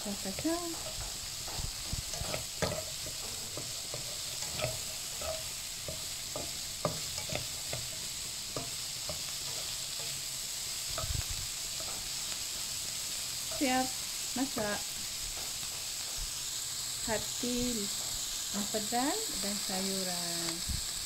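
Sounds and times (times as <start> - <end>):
food sizzling in hot oil: 0.0 - 21.0
spatula scraping and tapping pan: 0.1 - 12.8, 13.4 - 16.3.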